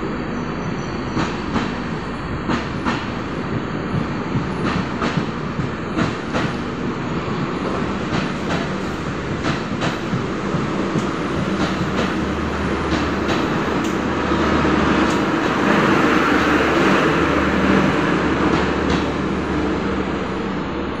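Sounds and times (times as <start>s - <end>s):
train rumbling by: 0.0s - 21.0s.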